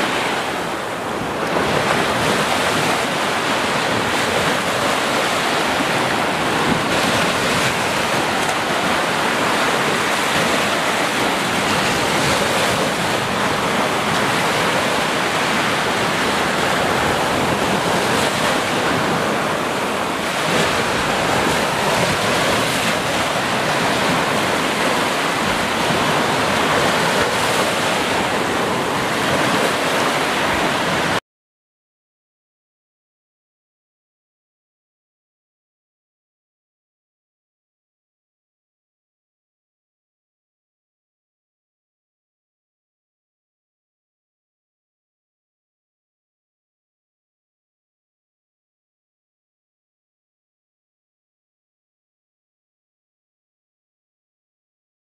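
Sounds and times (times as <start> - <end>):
small waves breaking on beach: 0.0 - 31.2.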